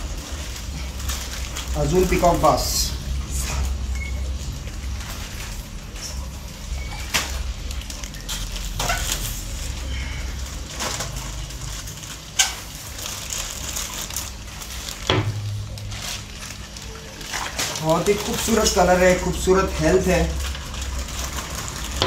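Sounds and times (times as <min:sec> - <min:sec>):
steady low hum: 0:00.0 - 0:22.0
sharp knocks and rustles: 0:15.0 - 0:17.8.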